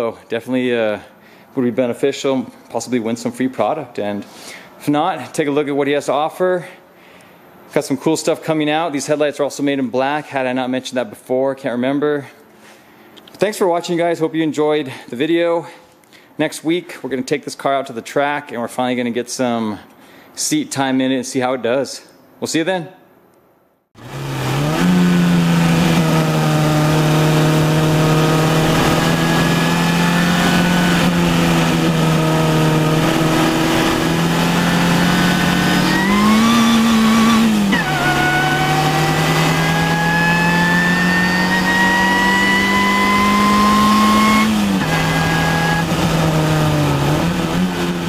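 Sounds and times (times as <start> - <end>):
car engine at high revs: 24.0 - 48.0
thin rising whine: 24.0 - 48.0.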